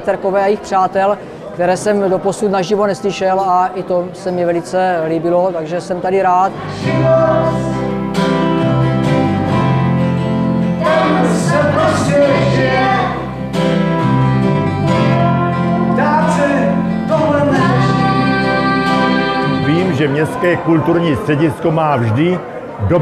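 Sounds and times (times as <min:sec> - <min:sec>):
strummed acoustic guitars: 0:06.3 - 0:20.8
electric bass guitar: 0:06.5 - 0:20.0
woman singing: 0:15.0 - 0:16.0, 0:17.4 - 0:19.7.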